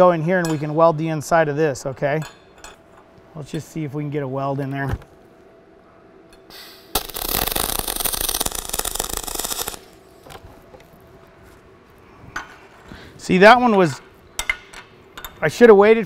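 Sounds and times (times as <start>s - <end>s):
welding arc crackling: 6.5s - 10.4s.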